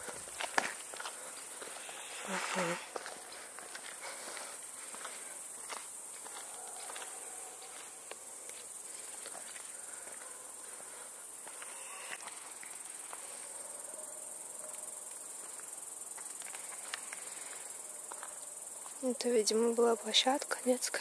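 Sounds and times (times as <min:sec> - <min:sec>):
insects chirring: 0:00.0 - 0:21.0.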